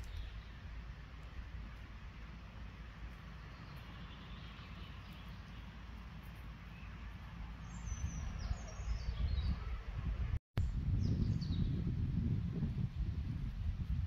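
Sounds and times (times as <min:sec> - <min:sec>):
small birds chirping: 0:00.0 - 0:10.0
wind rumble on microphone: 0:06.9 - 0:14.0.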